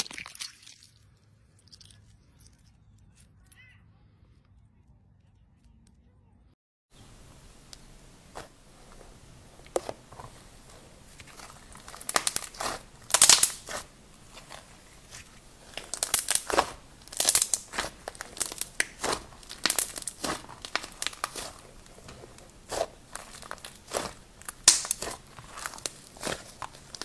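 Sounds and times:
slime crackling and popping: 7.6s - 27.0s.

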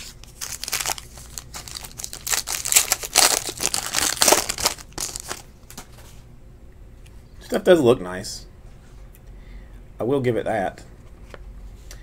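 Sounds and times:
foil wrapper tearing and crinkling: 0.0s - 5.4s.

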